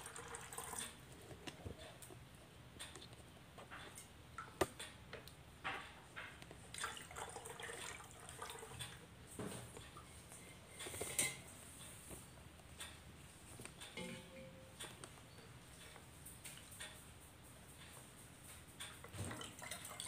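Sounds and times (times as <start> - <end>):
water pouring through a funnel: 0.0 - 1.0, 6.7 - 9.0, 19.2 - 20.0.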